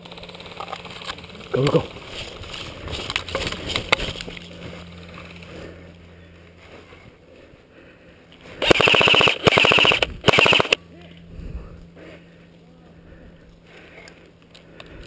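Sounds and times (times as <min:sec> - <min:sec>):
gear scraping and rustling: 0:00.0 - 0:07.6
airsoft rifle firing bursts: 0:08.6 - 0:10.8.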